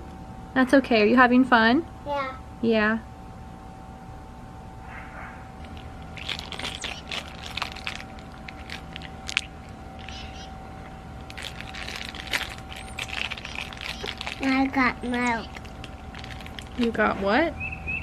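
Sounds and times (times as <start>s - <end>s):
faint steady hum: 0.0s - 18.0s
child chewing and crunching food: 5.6s - 17.0s.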